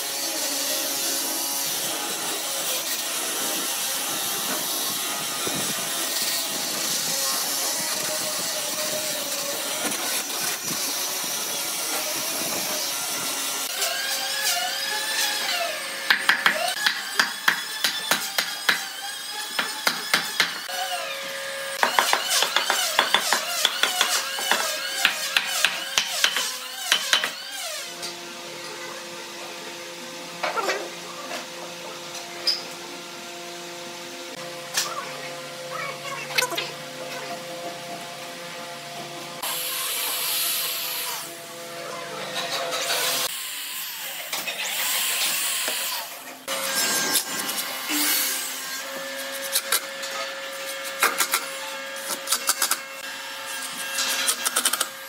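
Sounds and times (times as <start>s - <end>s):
electric sander sanding wood: 0.0s - 16.0s
hammer striking wood: 16.1s - 18.9s, 19.6s - 20.6s, 21.8s - 27.4s.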